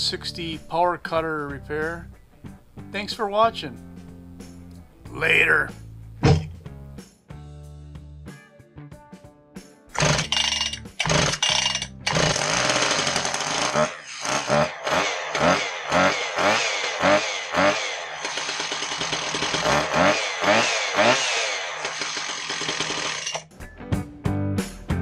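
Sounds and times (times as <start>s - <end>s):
power cutter engine pull-started: 10.0s - 23.4s
engine throttle revving: 12.1s - 23.4s.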